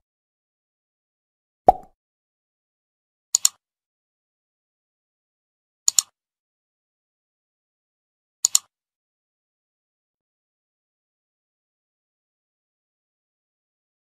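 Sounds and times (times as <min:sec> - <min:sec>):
mouse double clicks: 0:05.9 - 0:06.1, 0:08.4 - 0:08.7.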